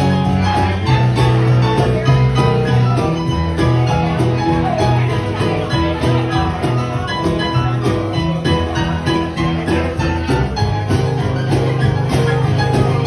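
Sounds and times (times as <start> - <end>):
acoustic guitar: 0.0 - 13.0.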